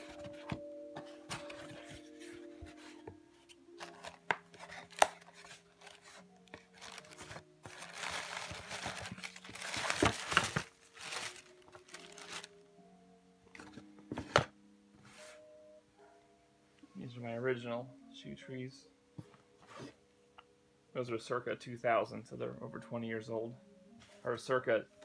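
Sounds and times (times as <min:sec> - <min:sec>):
tissue paper rustling: 0:03.8 - 0:12.6.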